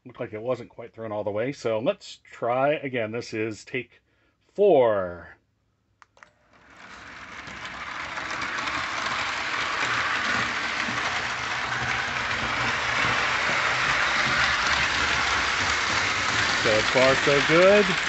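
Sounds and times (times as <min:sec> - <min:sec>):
toy train motor hum: 0:06.5 - 0:18.0
wheels rattling on rails: 0:06.6 - 0:18.0.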